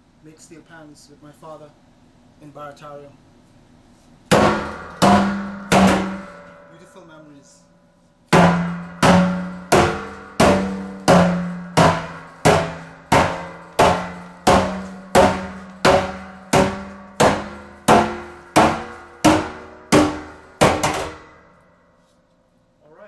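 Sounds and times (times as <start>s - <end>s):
sledgehammer pounding steel drum: 4.3s - 7.1s, 8.3s - 21.8s.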